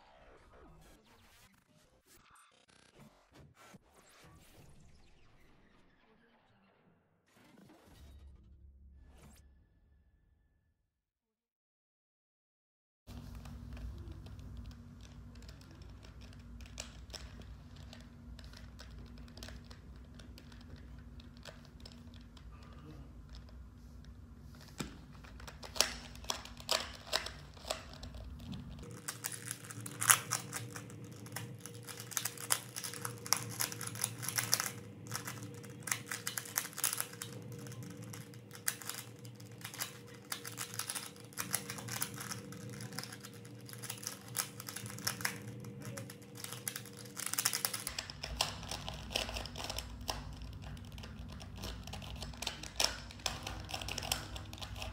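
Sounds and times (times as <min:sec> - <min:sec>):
puzzle cube layers clicking: 0:25.3 - 0:54.9.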